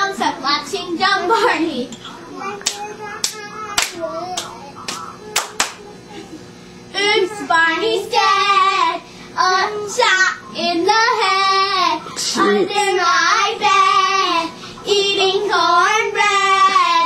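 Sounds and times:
girls singing: 7.0 - 17.0.

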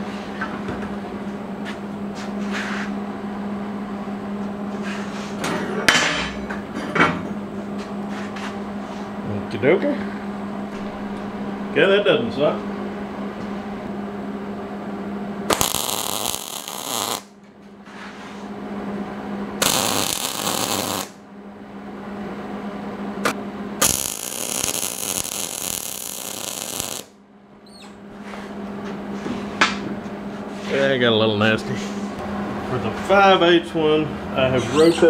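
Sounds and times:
steady low hum: 0.0 - 35.0
welding arc crackling: 15.5 - 17.3, 19.6 - 21.2, 23.8 - 27.1.

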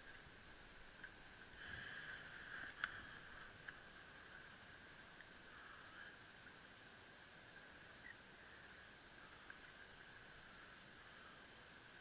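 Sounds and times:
faint high-pitched hum: 0.0 - 12.0
tiny ticks: 9.4 - 10.2.

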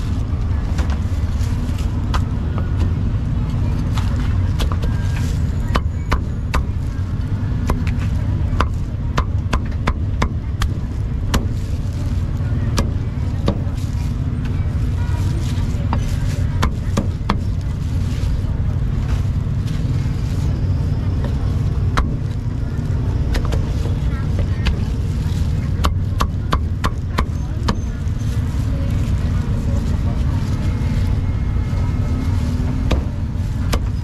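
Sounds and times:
street traffic rumble: 0.0 - 34.0
cleaver chopping meat: 7.5 - 11.6, 25.8 - 27.8, 32.8 - 34.0.

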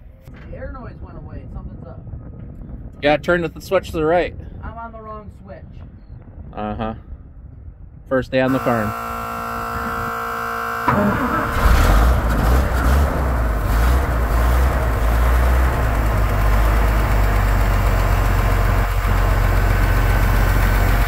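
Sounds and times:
steady electric hum: 8.5 - 12.3
truck engine cranking and running: 8.5 - 21.0.

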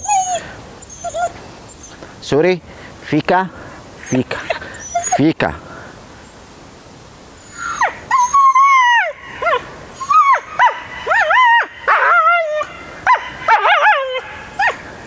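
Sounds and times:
dog whining and yelping: 0.0 - 2.0, 4.0 - 5.2, 7.4 - 14.8.

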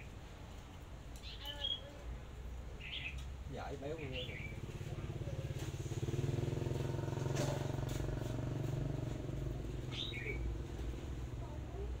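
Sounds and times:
bird chirping: 1.2 - 2.0, 2.8 - 5.0, 9.6 - 10.7
small engine running: 4.6 - 11.4.

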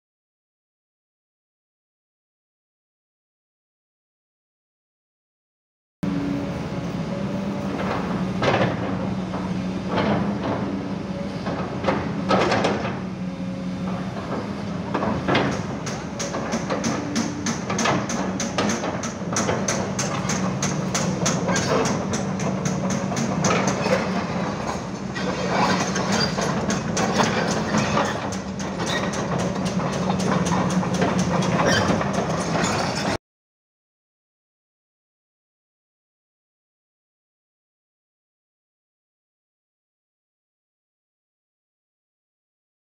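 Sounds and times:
excavator diesel engine running: 6.1 - 33.2.

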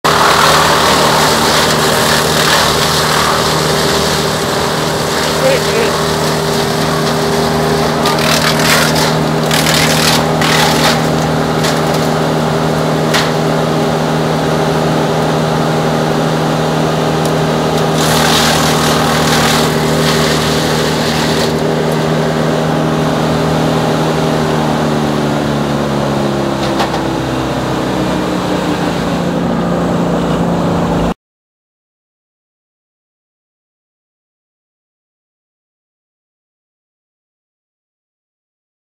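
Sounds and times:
wood chipper engine running: 0.0 - 31.2
branches crackling in chipper: 0.1 - 25.1.

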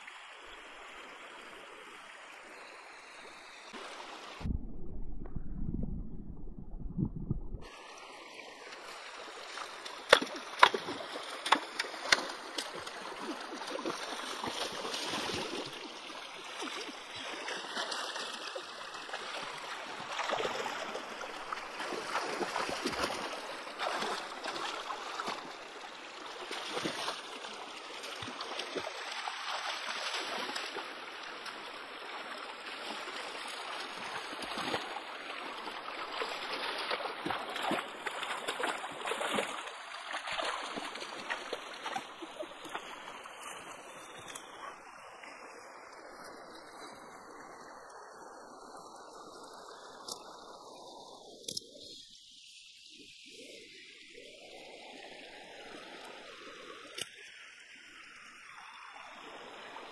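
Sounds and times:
stream running over rocks: 0.0 - 59.9
splashing in water: 8.6 - 25.6, 32.8 - 44.7.

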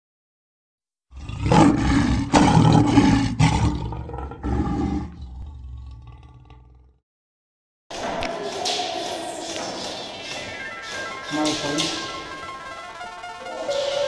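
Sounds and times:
lion roaring: 1.1 - 7.0.

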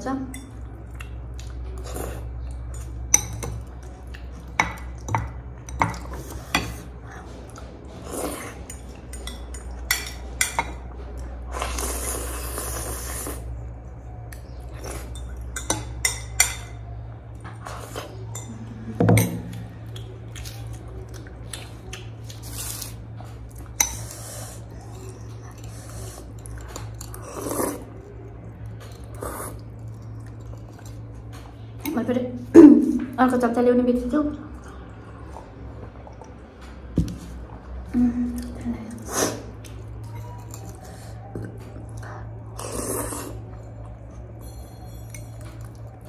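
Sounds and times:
slurping noodles: 11.5 - 13.6, 42.6 - 43.5.

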